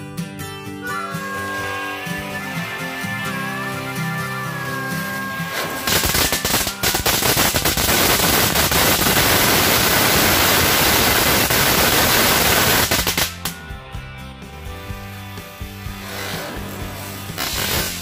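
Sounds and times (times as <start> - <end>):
guitar music: 0.0 - 8.7, 12.2 - 18.0
firecracker crackling bangs: 4.7 - 13.6, 16.0 - 18.0.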